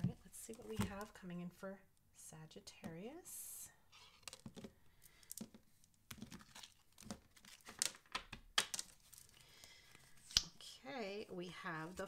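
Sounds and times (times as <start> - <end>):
cards being shuffled: 4.0 - 10.4.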